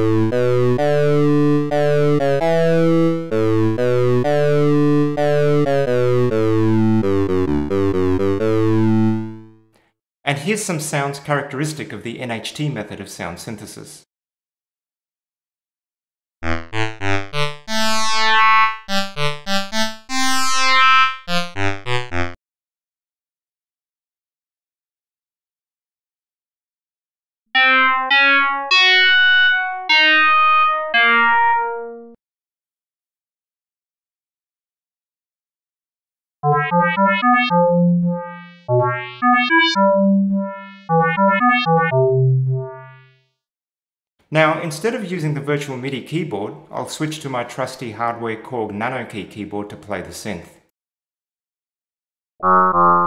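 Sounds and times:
sax-like synthesizer notes: 0.0s - 9.6s, 16.5s - 21.7s, 36.5s - 43.1s, 52.4s - 53.0s.

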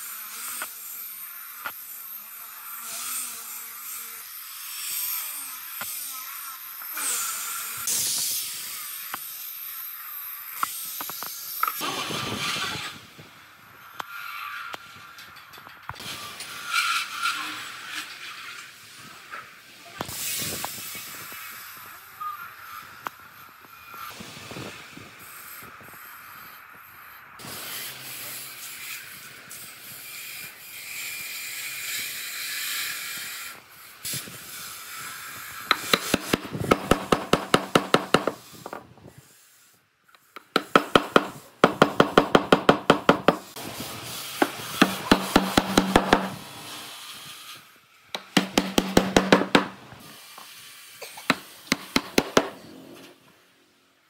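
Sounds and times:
rasping on wood: 35.7s - 38.8s, 44.4s - 46.4s, 48.2s - 49.8s
sharp taps on wood: 48.2s - 49.8s.

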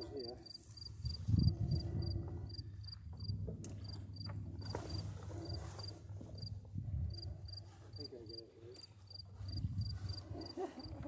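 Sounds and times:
cricket chirping: 0.0s - 11.0s
low rumble: 0.9s - 7.8s.

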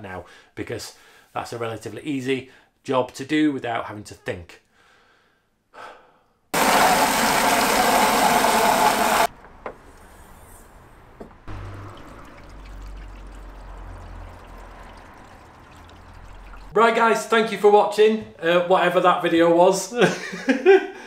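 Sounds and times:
washer fluid trickling into reservoir: 11.5s - 16.8s.

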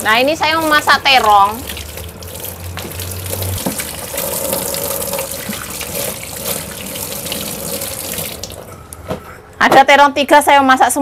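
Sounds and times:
tap water splashing into steel sink: 1.2s - 8.7s.

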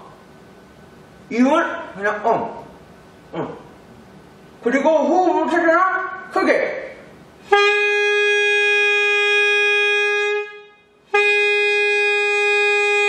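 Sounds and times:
saxophone mouthpiece held tones: 7.4s - 13.0s.

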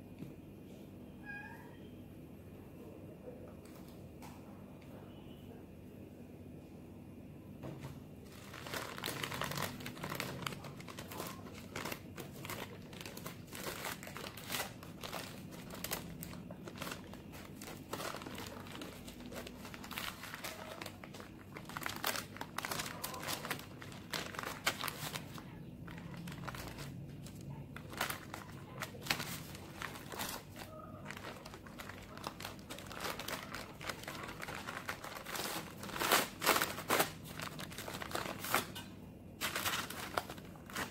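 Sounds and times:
baking paper crinkling: 8.2s - 40.9s.

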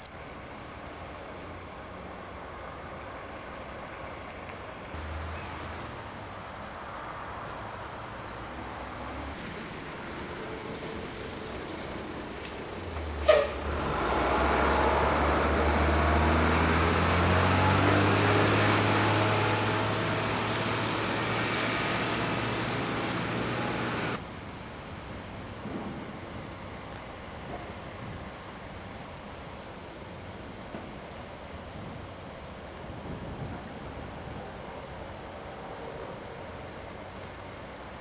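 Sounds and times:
diesel engine rumbling: 0.0s - 29.1s.

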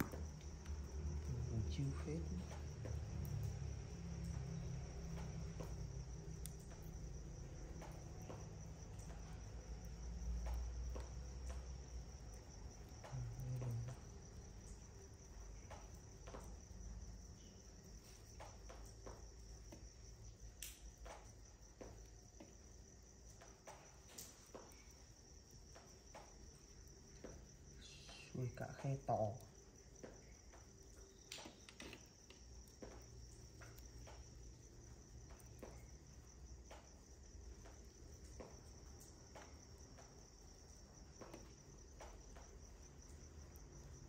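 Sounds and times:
crickets trilling: 0.0s - 44.0s
faint sharp clicks: 20.6s - 21.2s.

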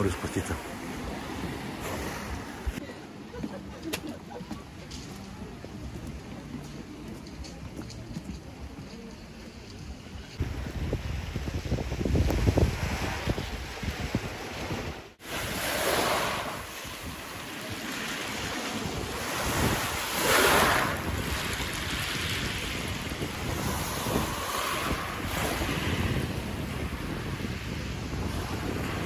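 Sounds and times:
sea waves washing ashore: 0.0s - 29.0s
wind buffeting microphone: 7.2s - 29.0s.

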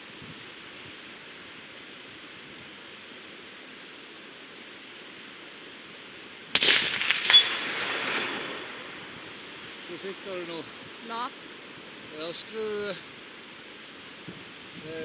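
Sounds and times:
rain hissing: 0.0s - 15.0s
suppressed rifle shot: 6.5s - 8.7s
sharp cracks: 6.5s - 9.0s.

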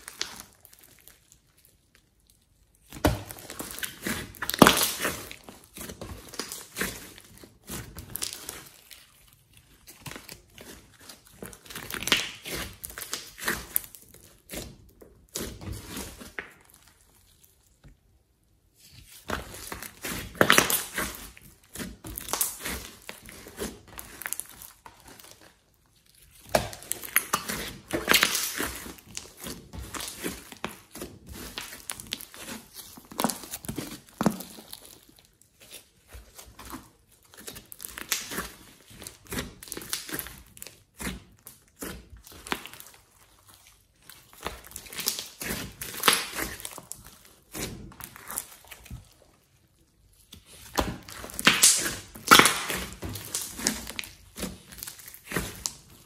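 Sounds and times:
slime squelching by hand: 0.0s - 56.0s.

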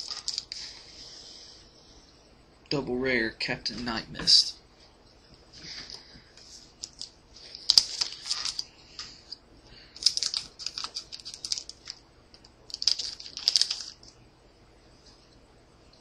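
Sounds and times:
foil wrapper crinkling: 0.0s - 0.7s, 6.6s - 8.7s, 10.0s - 12.0s, 12.7s - 14.1s.

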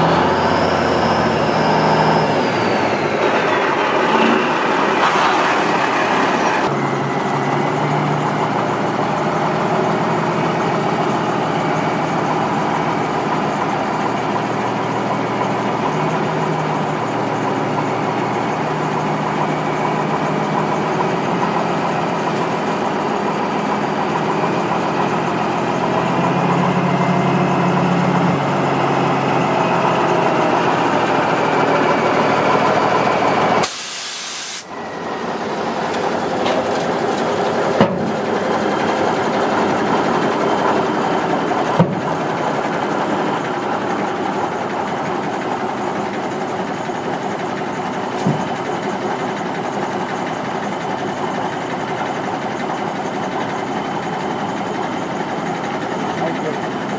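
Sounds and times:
diesel truck engine running: 0.0s - 56.9s
air hiss: 33.6s - 34.7s.

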